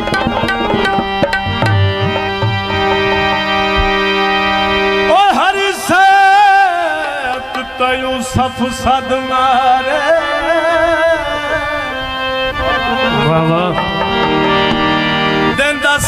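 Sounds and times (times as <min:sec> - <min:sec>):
drum beats: 0:00.0 - 0:04.3, 0:06.5 - 0:08.5, 0:13.2 - 0:15.7
harmonium melody: 0:00.0 - 0:16.0
man singing: 0:05.0 - 0:14.1, 0:15.5 - 0:16.0.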